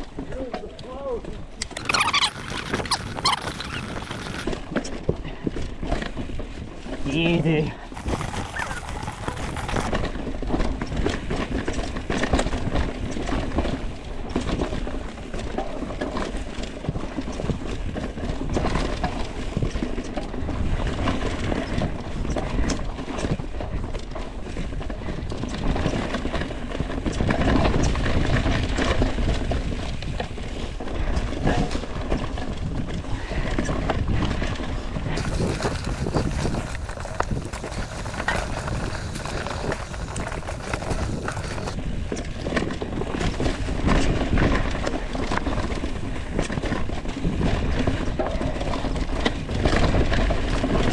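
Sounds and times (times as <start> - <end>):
bike rattling and knocking: 0.0 - 50.9
tyres crunching over leaves and rock: 7.0 - 10.0, 35.2 - 44.9.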